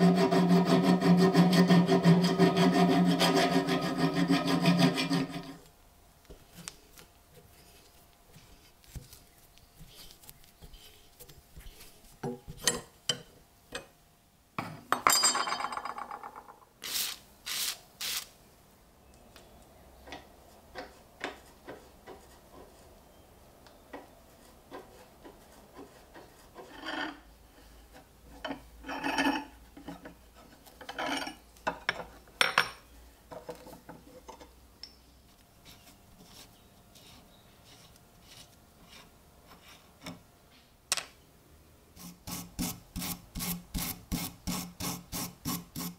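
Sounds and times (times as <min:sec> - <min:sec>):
rapid rasping scrape: 0:00.0 - 0:05.6.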